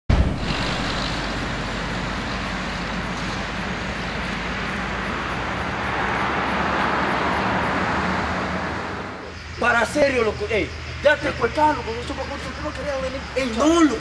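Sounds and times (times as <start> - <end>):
low engine hum: 0.1 - 9.5
road noise hiss: 0.1 - 14.0.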